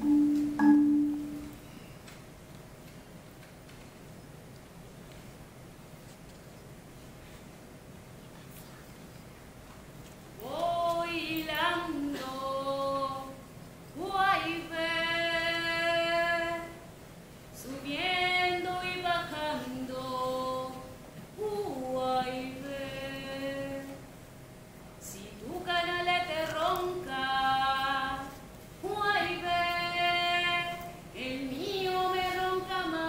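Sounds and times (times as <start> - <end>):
woman singing unaccompanied: 10.4 - 16.8, 17.6 - 24.1, 25.0 - 33.0.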